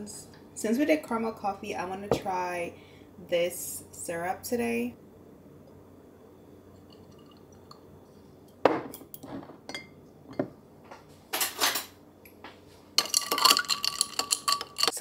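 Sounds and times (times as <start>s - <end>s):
bottle knocking on countertop: 2.1s - 2.4s, 8.6s - 9.6s
stirrer clinking in iced glass: 13.0s - 15.0s.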